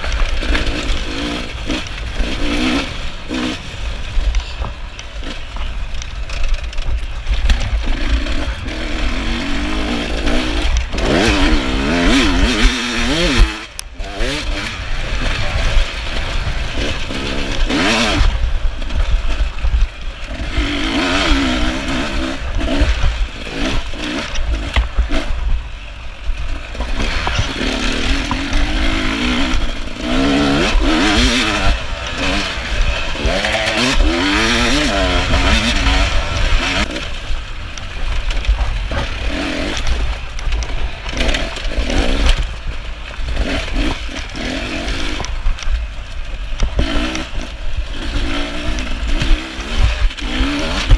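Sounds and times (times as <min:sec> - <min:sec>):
dirt bike engine revving: 0:00.0 - 0:50.9.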